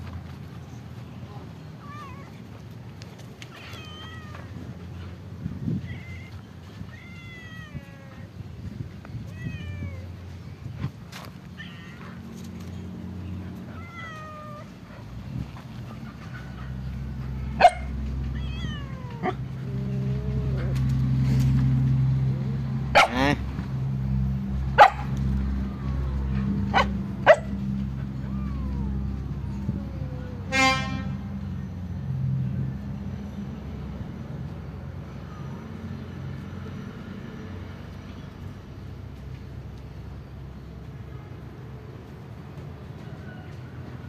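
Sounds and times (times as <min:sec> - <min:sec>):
cat meowing: 0:03.5 - 0:04.6, 0:05.8 - 0:08.3, 0:09.3 - 0:10.1, 0:13.7 - 0:14.7, 0:18.3 - 0:20.6, 0:28.2 - 0:30.5
dog barking: 0:17.6 - 0:17.9, 0:22.9 - 0:23.3, 0:24.8 - 0:25.1, 0:26.7 - 0:27.6.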